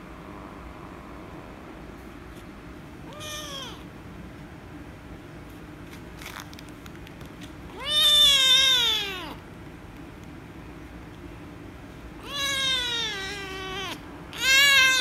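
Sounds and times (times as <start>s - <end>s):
kitten meowing: 3.1s - 3.8s, 7.7s - 9.4s, 12.2s - 15.0s.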